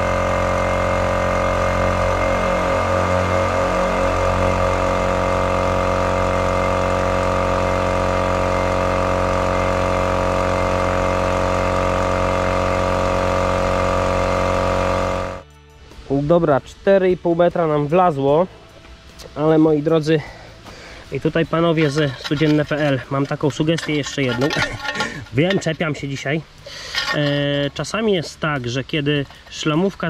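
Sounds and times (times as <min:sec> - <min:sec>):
air compressor running: 0:00.0 - 0:15.4, 0:20.2 - 0:27.6.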